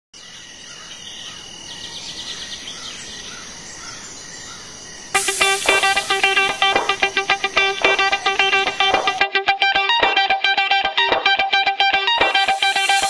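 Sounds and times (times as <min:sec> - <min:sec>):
faint insect chirps: 0:00.2 - 0:09.2, 0:12.3 - 0:13.0
high insect drone: 0:00.2 - 0:09.2, 0:12.2 - 0:13.0
plucked electric guitar music: 0:05.2 - 0:13.0.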